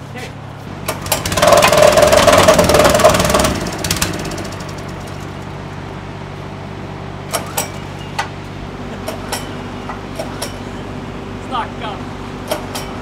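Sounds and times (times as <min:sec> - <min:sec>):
engine idling: 0:00.7 - 0:13.0
plate compactor vibrating: 0:00.8 - 0:05.8.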